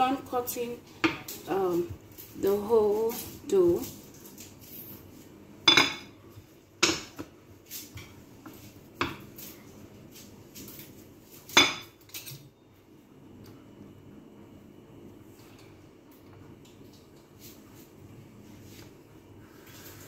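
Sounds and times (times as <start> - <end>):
utensils knocking on stone countertop: 5.6 - 6.2, 6.8 - 7.2.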